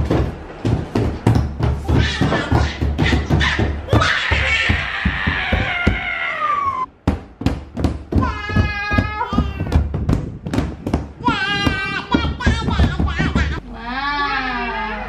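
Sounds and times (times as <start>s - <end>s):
children slapping a tabletop: 0.0s - 6.4s, 7.0s - 13.6s
toddler squealing: 1.9s - 6.9s.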